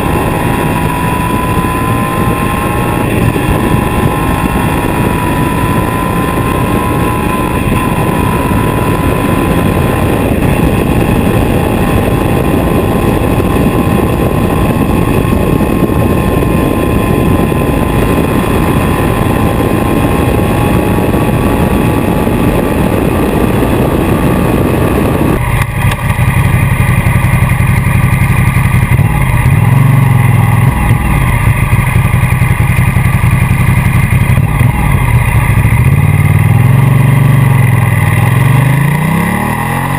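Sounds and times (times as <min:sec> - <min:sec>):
motorcycle engine running: 0:00.0 - 0:39.9
wind rush over camera: 0:00.0 - 0:39.9.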